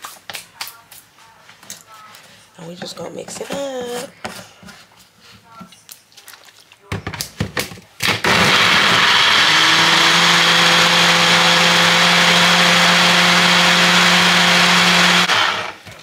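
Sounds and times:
blender motor running: 8.1s - 15.8s.

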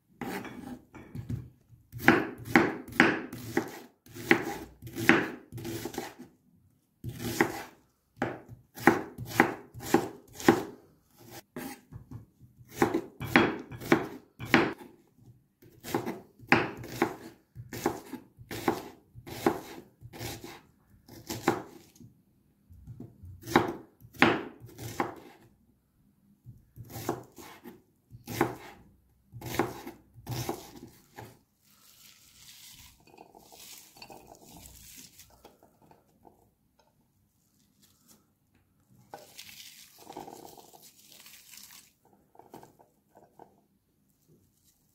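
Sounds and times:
knife chopping on wooden board: 0.2s - 6.3s, 7.0s - 14.9s, 15.7s - 21.8s, 22.8s - 25.4s, 26.8s - 31.4s
rustling of sliced onion: 29.6s - 36.3s, 37.3s - 43.4s, 44.1s - 44.9s.

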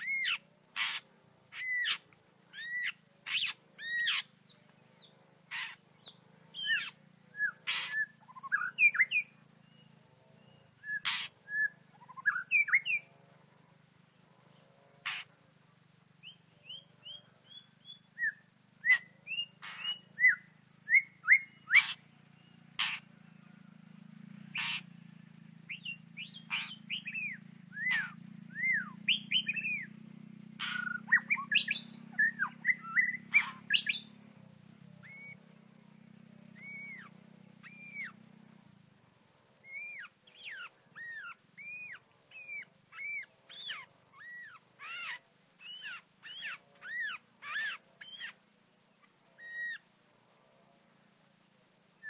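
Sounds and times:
low hum: 0.0s - 44.7s
bird whistling and clicking: 10.9s - 13.0s.

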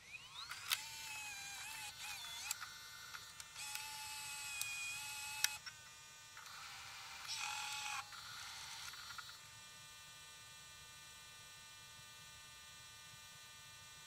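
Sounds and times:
tape mechanism whirring: 0.0s - 5.7s, 6.4s - 9.4s.

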